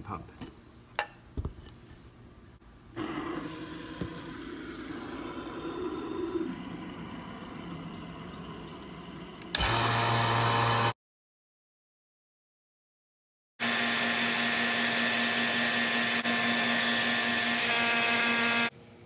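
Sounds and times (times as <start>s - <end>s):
vacuum pump running: 3.0s - 10.9s.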